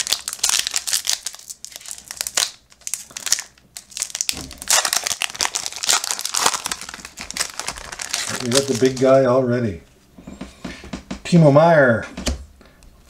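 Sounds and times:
foil wrapper crinkling and tearing: 0.0 - 9.2.

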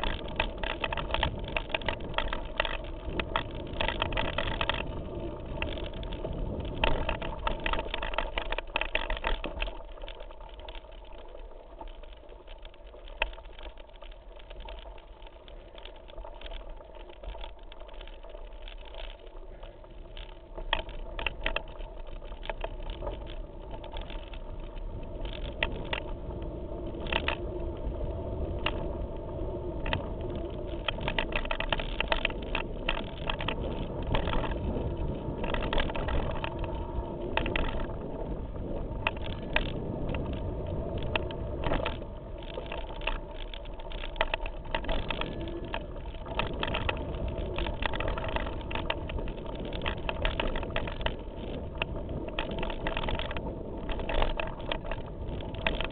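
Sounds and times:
bike rattling and knocking: 0.0 - 55.9
tyres rolling over stones: 0.0 - 55.9.

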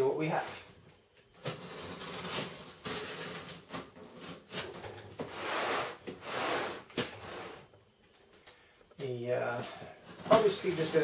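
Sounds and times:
packing tape peeling: 1.4 - 4.8.

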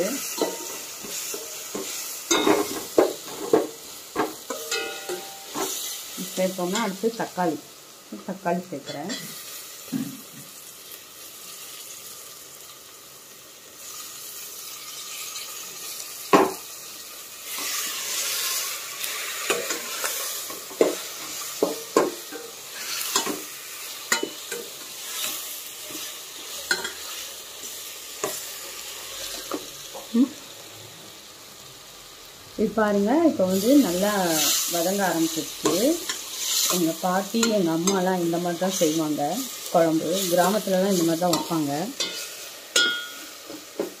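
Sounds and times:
onions sizzling in hot oil: 0.0 - 44.0
metal spoon clinking against pot: 4.5 - 5.7, 41.3 - 43.2.

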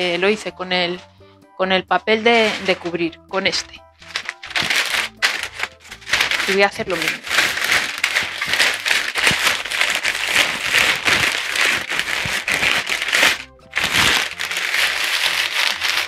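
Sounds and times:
paper crumpling: 2.3 - 3.0, 4.0 - 16.0.

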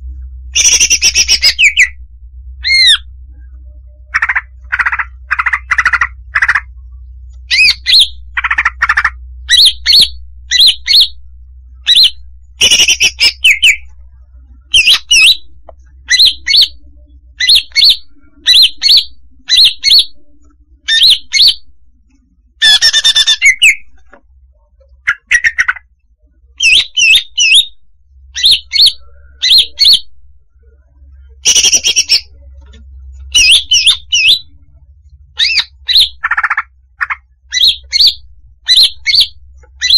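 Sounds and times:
bird chirping and squawking: 0.6 - 1.9, 2.6 - 3.1, 4.1 - 6.7, 7.5 - 11.2, 11.8 - 13.9, 14.7 - 16.8, 17.4 - 20.2, 20.8 - 21.6, 22.6 - 24.0, 25.0 - 25.8, 26.6 - 27.8, 28.4 - 30.1, 31.4 - 32.3, 33.2 - 34.6, 35.4 - 39.9.

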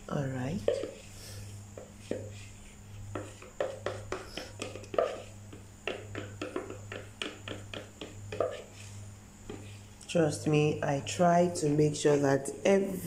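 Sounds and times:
low steady hum: 0.0 - 13.0
plastic spatula scraping a cup: 0.6 - 1.2, 1.8 - 9.9.

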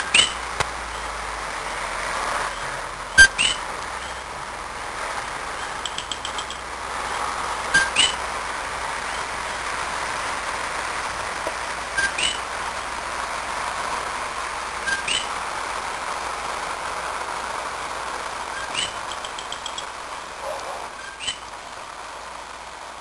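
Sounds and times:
tree frogs calling: 0.0 - 1.2, 1.8 - 4.4, 5.4 - 6.7, 7.7 - 9.7, 11.5 - 12.8, 14.8 - 15.5, 18.5 - 21.6
steady hiss: 0.0 - 23.0.

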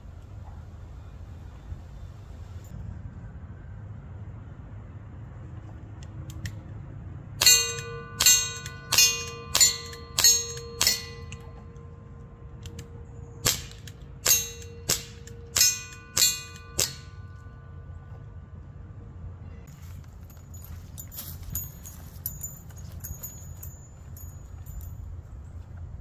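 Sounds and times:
steel targets ringing: 7.4 - 18.4
air revolver shots popping: 13.4 - 17.0.

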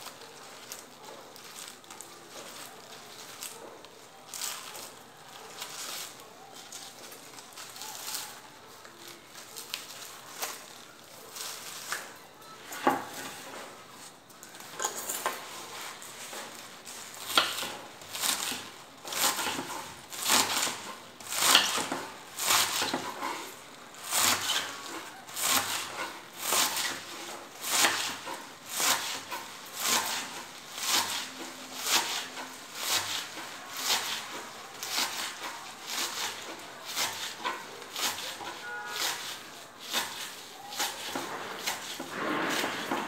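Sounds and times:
knife chopping onions on wooden board: 17.2 - 43.0.

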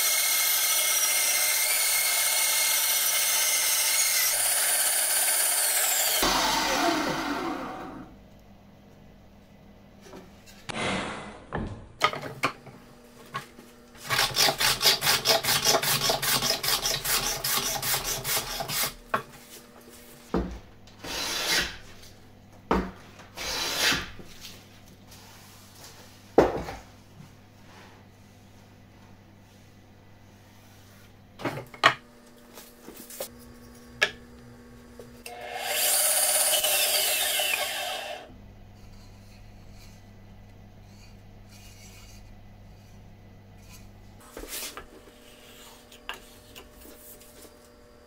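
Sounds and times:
bandsaw cutting wood: 0.0 - 8.1, 14.0 - 19.0, 21.0 - 21.8, 35.3 - 38.3.

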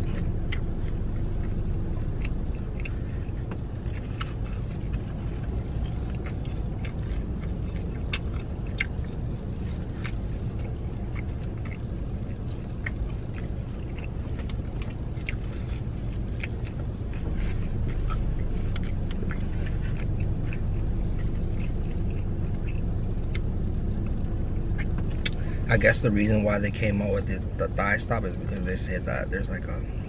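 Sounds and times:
wet mouth sounds: 0.0 - 25.4
chewing crispy chicken: 0.0 - 29.1
low car cabin rumble: 0.0 - 30.0.

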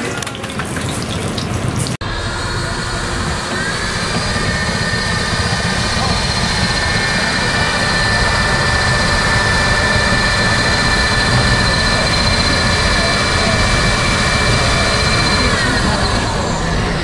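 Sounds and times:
machine whining: 0.0 - 17.0
loud rushing noise: 2.0 - 17.0.

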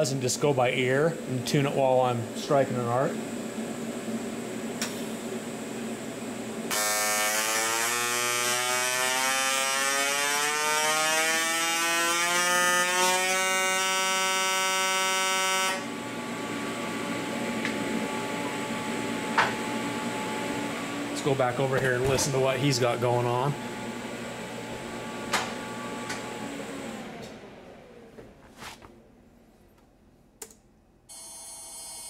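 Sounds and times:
welding arc buzzing rising pitch: 6.7 - 21.0, 31.1 - 32.0.

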